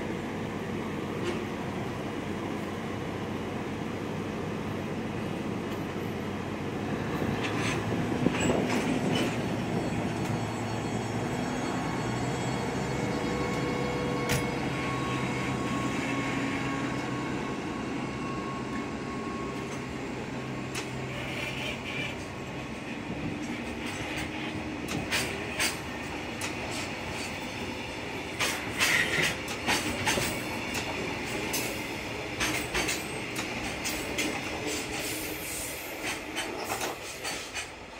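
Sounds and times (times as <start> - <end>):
diesel locomotive engine: 0.0 - 37.9
train wheels clacking over rail joints: 7.3 - 9.5, 23.2 - 27.5, 28.2 - 37.9
wheel squeals: 7.4 - 19.9.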